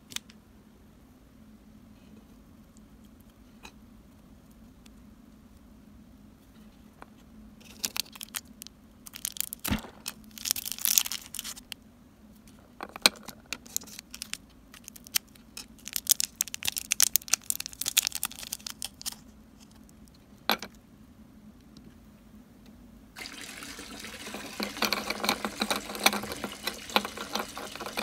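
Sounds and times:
plastic mesh bag rustling: 9.1s - 11.6s
plastic toys clicking: 13.1s - 19.2s.

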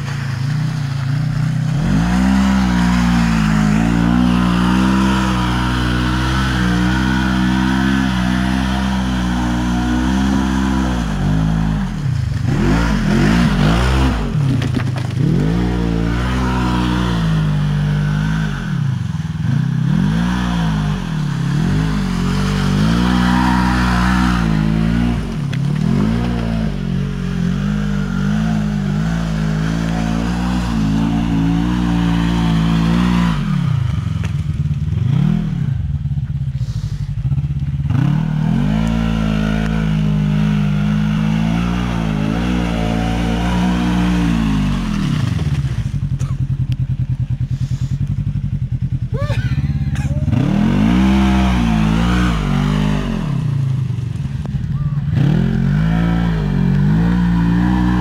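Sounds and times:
tyres churning mud: 0.0s - 35.8s, 36.6s - 46.6s, 49.1s - 58.0s
engine revving: 0.0s - 58.0s
engine idling: 35.8s - 37.9s, 45.3s - 50.9s.

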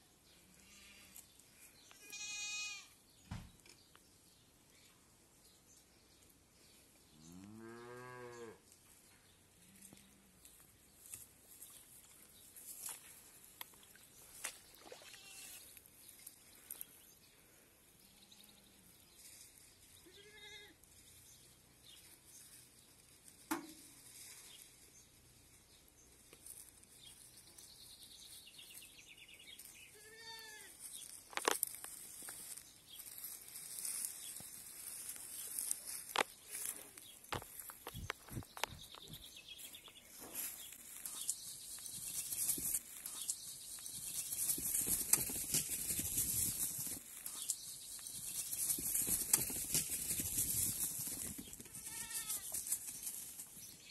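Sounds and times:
rustles and knocks on microphone: 37.2s - 39.3s
goats bleating: 51.8s - 52.5s.

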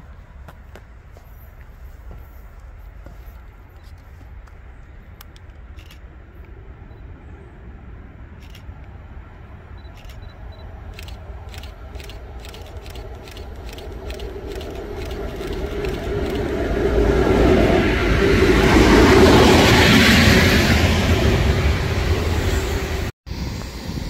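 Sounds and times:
freight train rumbling: 0.0s - 24.0s
train wheels clicking: 10.9s - 16.8s.

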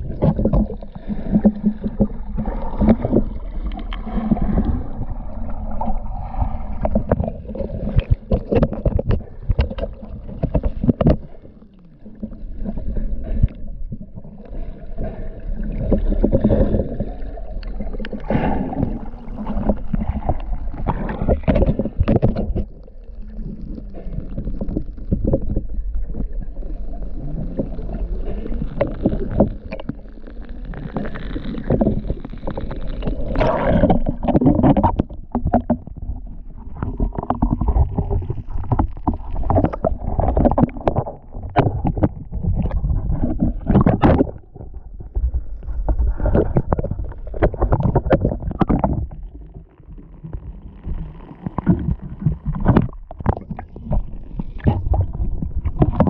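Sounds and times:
knocks and clicks on hull: 0.0s - 4.8s, 6.8s - 11.4s, 17.6s - 22.8s, 31.6s - 49.6s, 50.3s - 56.0s
gurgling water: 0.0s - 56.0s
low underwater rumble: 0.0s - 56.0s.

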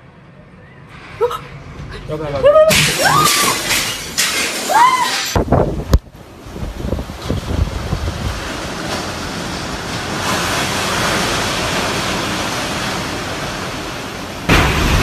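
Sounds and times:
loud wind rushing: 4.6s - 9.5s
wind buffeting microphone: 5.3s - 15.0s.

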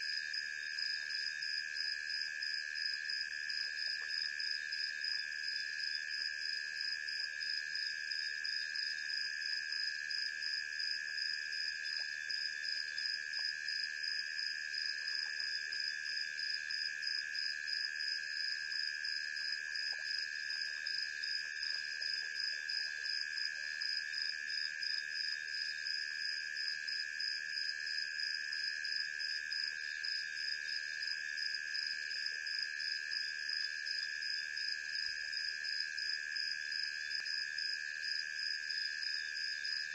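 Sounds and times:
crickets trilling: 38.8s - 39.9s.

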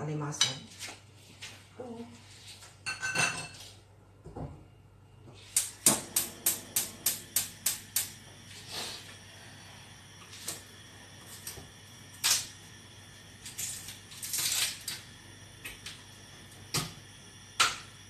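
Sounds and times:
metal cookware clattering: 2.9s - 3.6s
stove igniter clicking: 5.6s - 8.3s.

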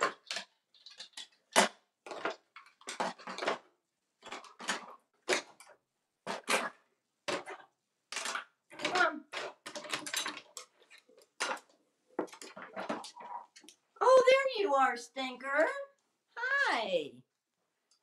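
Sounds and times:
plastic toys clattering: 0.0s - 13.8s.

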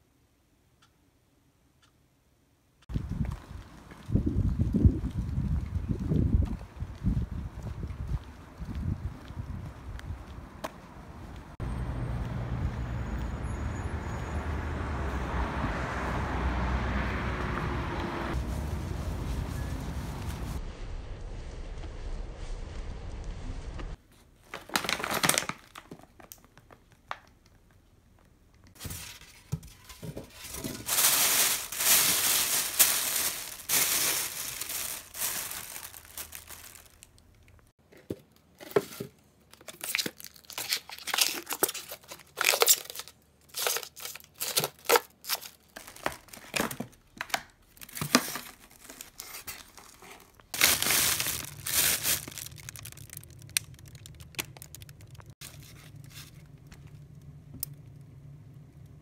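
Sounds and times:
plastic pouches crinkling: 24.4s - 27.4s, 30.2s - 37.7s, 39.5s - 57.1s.

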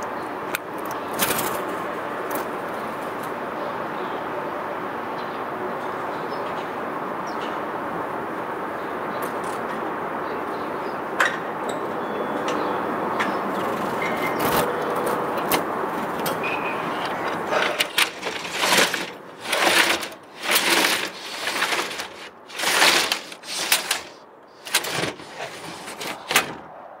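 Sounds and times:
steady background noise: 0.0s - 27.0s
roller shutter rattling down: 13.5s - 26.7s.

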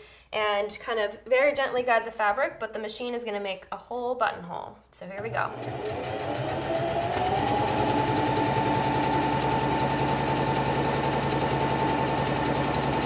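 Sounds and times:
sewing machine stitching: 5.2s - 13.0s.

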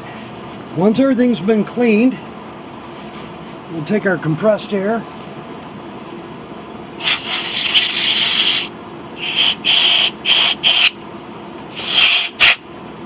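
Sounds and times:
compressed air blow gun hissing: 7.0s - 10.9s, 11.7s - 12.6s.

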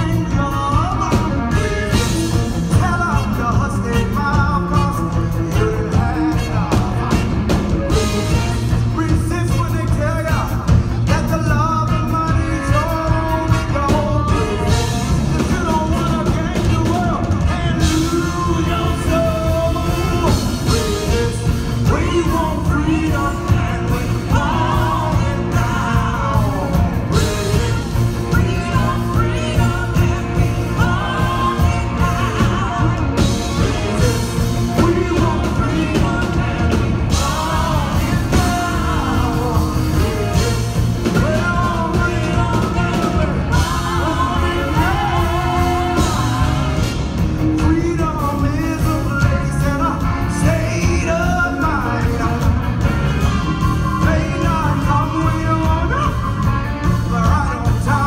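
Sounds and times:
live band playing: 0.0s - 58.0s
man singing: 0.0s - 58.0s
woman singing: 11.4s - 47.0s.

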